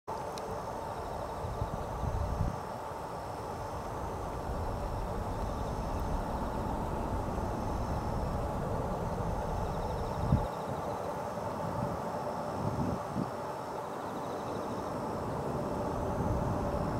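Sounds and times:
distant jet engine rumble: 0.5 - 16.9
wind on microphone: 1.4 - 2.7, 3.6 - 10.8, 11.6 - 13.4.

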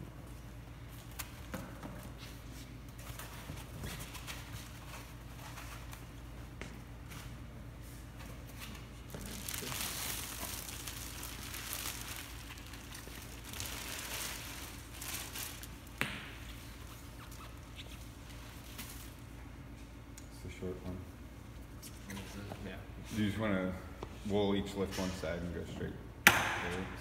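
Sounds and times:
plastic wrapping crinkling: 8.5 - 19.3.

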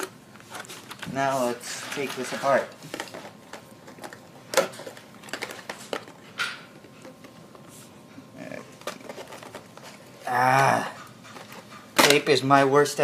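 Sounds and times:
clicks and handling noises: 0.0 - 7.7, 8.7 - 10.0
cardboard scraping rustle: 0.4 - 3.4.

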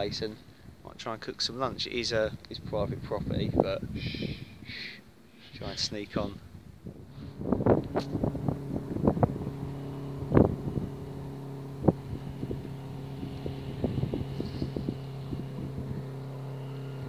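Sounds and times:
low engine hum: 6.5 - 17.0.

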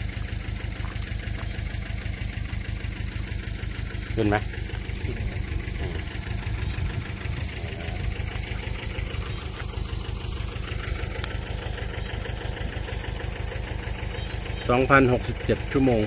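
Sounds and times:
diesel air compressor idling: 0.0 - 16.0.

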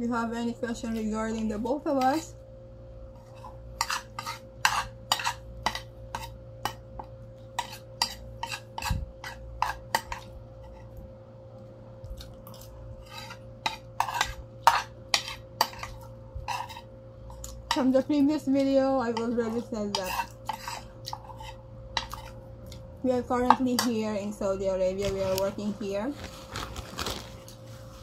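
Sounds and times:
cutlery scraping and clinking on plate: 3.2 - 10.9, 13.0 - 17.8, 19.9 - 22.4.

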